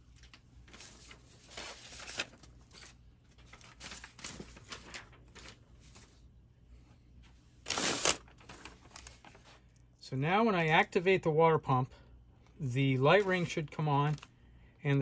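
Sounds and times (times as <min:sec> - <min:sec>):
faint rustling and handling: 0:00.1 - 0:09.9.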